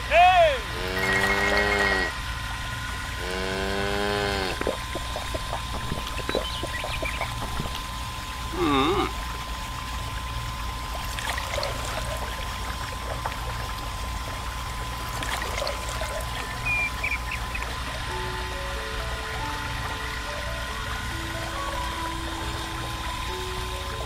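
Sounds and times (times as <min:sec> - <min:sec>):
constant low hum: 0:00.0 - 0:24.0
brief wavering tone: 0:00.8 - 0:02.2, 0:16.4 - 0:18.3
water trickling into pond: 0:00.8 - 0:24.0.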